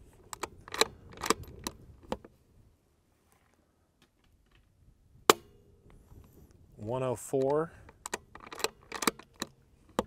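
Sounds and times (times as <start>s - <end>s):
rifle bolt clicks: 0.2s - 2.3s, 7.2s - 10.0s.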